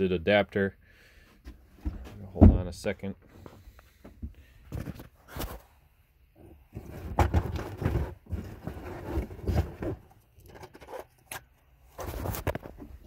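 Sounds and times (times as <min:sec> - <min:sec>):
handling noise on microphone: 0:11.9 - 0:13.0.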